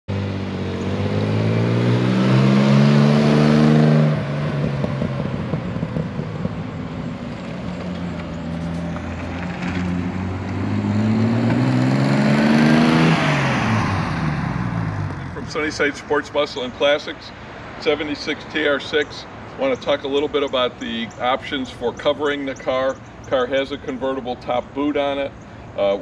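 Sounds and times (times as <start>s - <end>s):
car engine accelerating: 0.1s - 15.7s.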